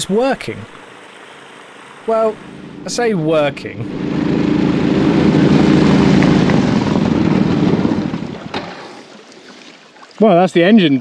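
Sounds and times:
small engine running: 0:00.2 - 0:08.9.

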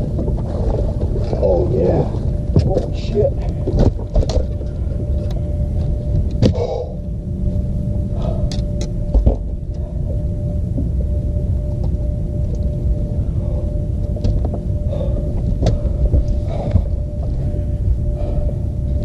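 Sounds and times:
knocks and clicks in boat: 0:00.0 - 0:06.7, 0:08.5 - 0:12.7, 0:14.0 - 0:17.5
faint hum: 0:00.0 - 0:19.0
steady low rumble: 0:00.0 - 0:19.0.

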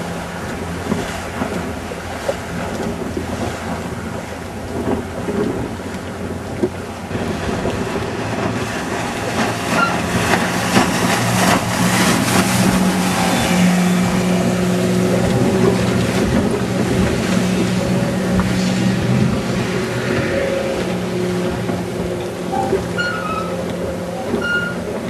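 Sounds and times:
outboard engine drone: 0:00.0 - 0:25.0
water rushing and spray splashing: 0:00.0 - 0:25.0.

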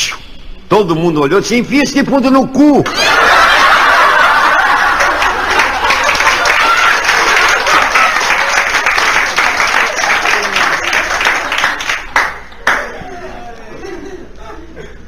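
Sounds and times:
audience applauding: 0:02.9 - 0:13.1.

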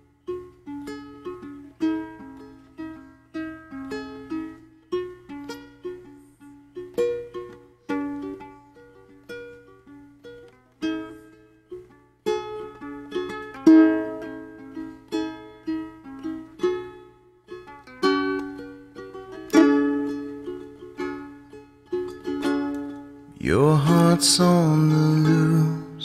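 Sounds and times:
plucked string instrument: 0:00.0 - 0:26.0.

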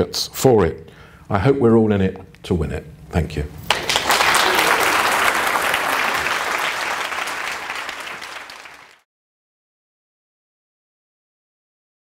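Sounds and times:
audience applauding: 0:03.7 - 0:09.0.

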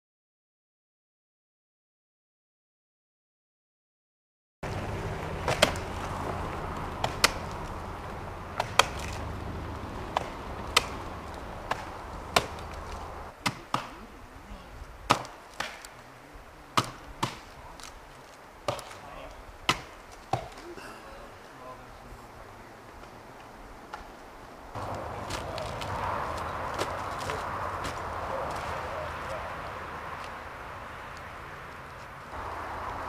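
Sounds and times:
low steady rumble: 0:04.6 - 0:13.3
chopping strikes on wood: 0:05.4 - 0:05.8, 0:07.0 - 0:07.6, 0:08.6 - 0:09.2, 0:10.1 - 0:11.0, 0:11.6 - 0:14.0, 0:15.1 - 0:15.9, 0:16.8 - 0:17.6, 0:18.6 - 0:19.0, 0:19.7 - 0:20.6.

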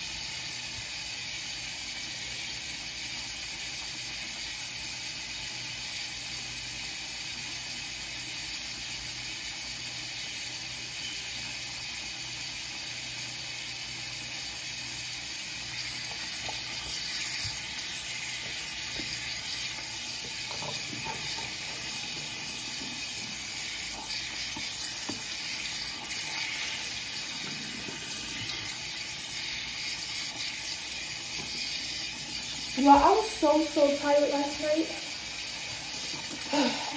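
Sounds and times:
high-pitched hiss: 0:09.4 - 0:36.9.

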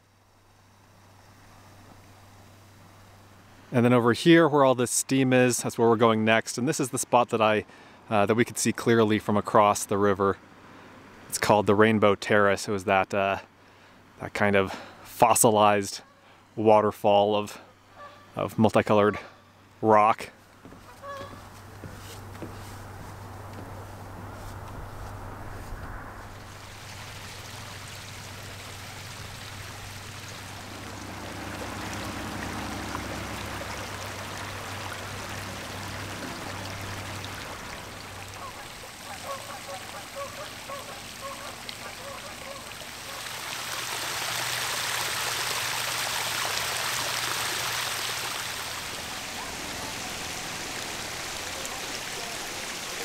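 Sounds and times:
water running and trickling: 0:26.2 - 0:53.0.

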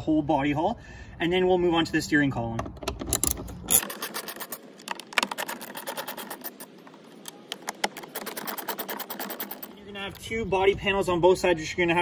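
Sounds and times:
tools clicking on plastic panels: 0:02.6 - 0:10.2.

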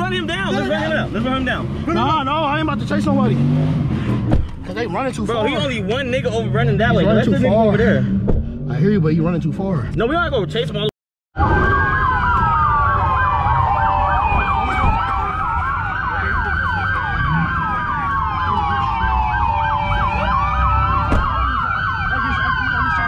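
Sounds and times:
emergency sirens yelping: 0:11.4 - 0:23.0
sirens wailing: 0:11.4 - 0:23.0.

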